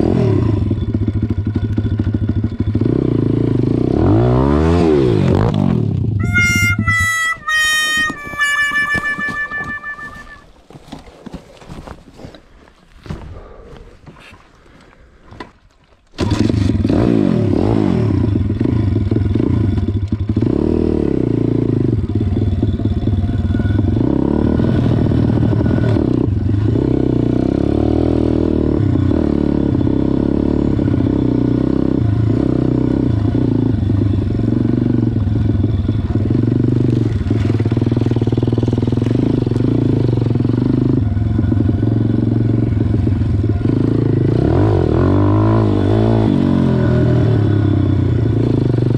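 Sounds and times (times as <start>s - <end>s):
motorbike engine revving: 16.2s - 48.9s.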